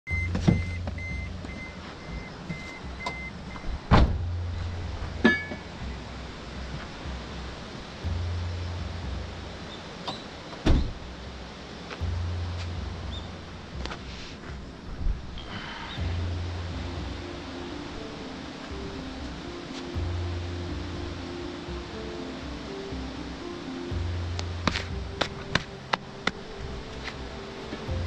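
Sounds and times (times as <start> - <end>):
door-open warning chime beeping: 0.1 - 3.8
low hum: 0.1 - 10.0, 11.0 - 28.0
truck door shutting thump: 0.3 - 1.0, 3.8 - 4.3, 10.0 - 11.0
metallic clank with ring: 5.2 - 5.7.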